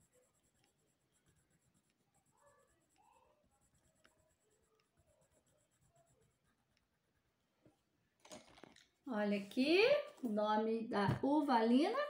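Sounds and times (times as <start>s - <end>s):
pencil scratching on paper: 0.0s - 7.4s.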